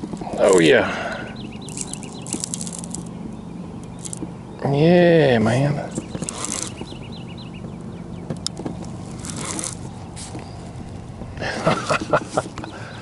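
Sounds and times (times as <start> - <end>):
fishing reel whirring: 1.5 - 3.2, 3.8 - 4.2, 5.9 - 7.1, 8.4 - 10.5
reel clicks and rattles: 1.6 - 3.1, 3.8 - 4.3, 5.9 - 7.0, 8.4 - 9.9.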